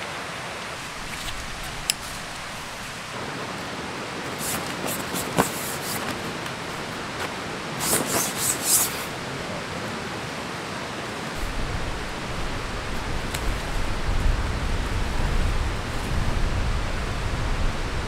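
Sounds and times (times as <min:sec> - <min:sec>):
steady rushing noise: 0:00.0 - 0:18.0
tent fabric rustling: 0:00.7 - 0:09.2.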